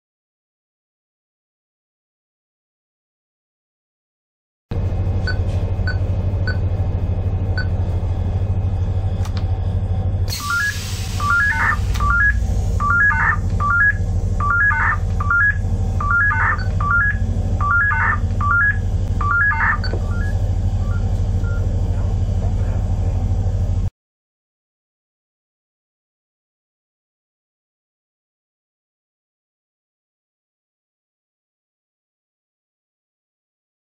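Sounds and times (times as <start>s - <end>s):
steady low hum: 4.7s - 23.9s
hiss: 10.3s - 11.4s
single key beeps: 10.3s - 21.6s
rising short beeps alarm: 10.3s - 21.7s.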